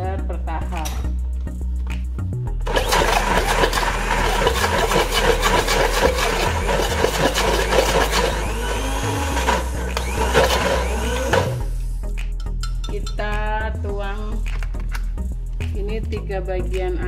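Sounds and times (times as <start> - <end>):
blender grinding: 2.6 - 11.9.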